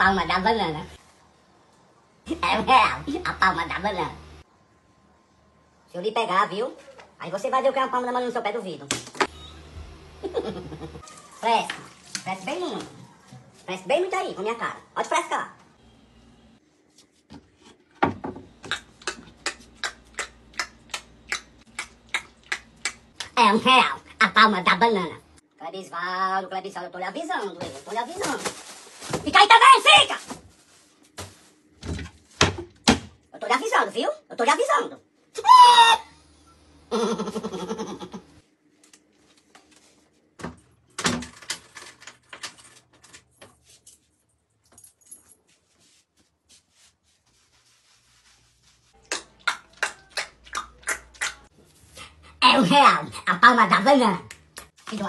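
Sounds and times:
finger snaps: 18.6 - 23.3.

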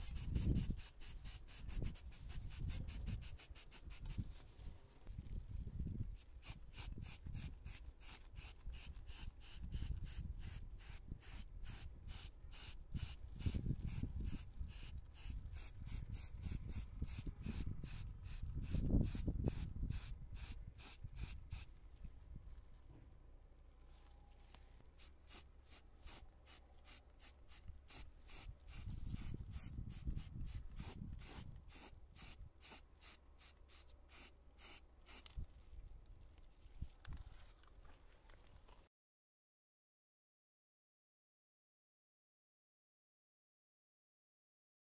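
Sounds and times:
rubbing strokes on a part: 0.0 - 4.6.

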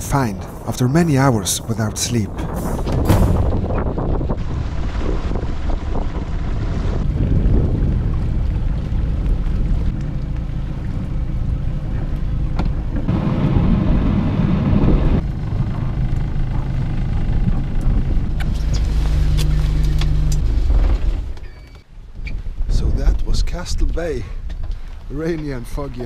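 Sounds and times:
boat engine idling: 0.0 - 21.8
rush of noise: 11.3 - 21.4.

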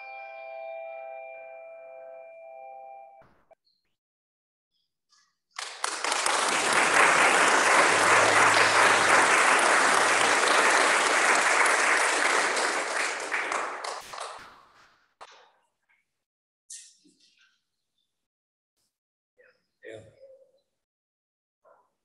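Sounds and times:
congregation clapping: 5.6 - 14.8.

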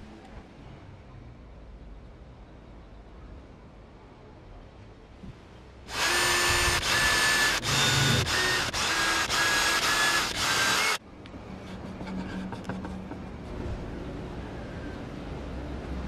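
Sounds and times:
electric drill whining bursts: 5.9 - 11.0.

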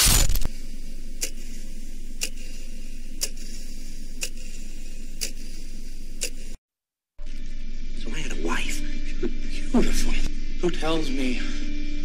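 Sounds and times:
background hum: 0.0 - 6.6, 7.2 - 12.0
clock ticking: 1.2 - 6.6.

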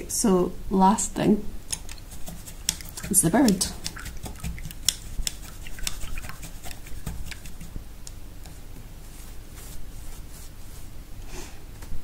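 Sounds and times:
paintbrush clicking against glass jar: 1.7 - 7.7
soft brushing on palette: 1.7 - 7.8, 8.4 - 11.1.

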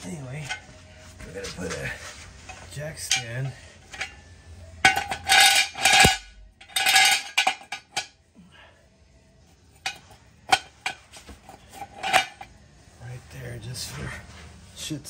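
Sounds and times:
metal jack stand clanking: 2.5 - 8.1, 9.8 - 12.5.

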